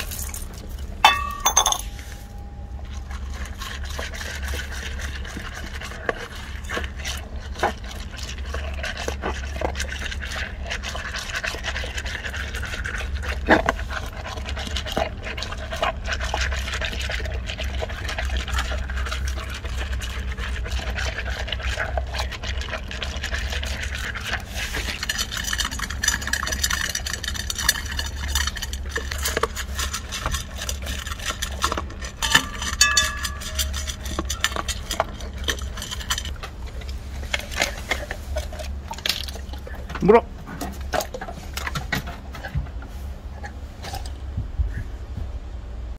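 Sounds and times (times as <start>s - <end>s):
dog crunching kibble in metal bowl: 0.0s - 42.5s
steady low hum: 0.0s - 45.9s
metal bowl ringing tones: 1.0s - 3.2s, 32.2s - 34.6s.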